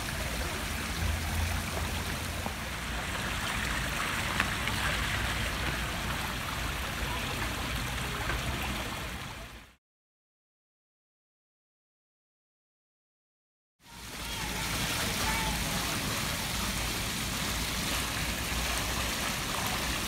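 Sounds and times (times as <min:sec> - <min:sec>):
fountain water splashing: 0:00.0 - 0:09.8, 0:13.8 - 0:20.0.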